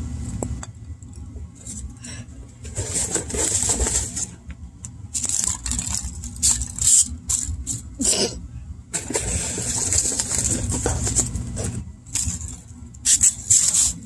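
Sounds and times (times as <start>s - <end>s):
low steady hum: 0.0s - 14.0s
packing peanuts and cardboard rustling: 2.6s - 4.4s, 5.1s - 8.1s, 8.9s - 14.0s.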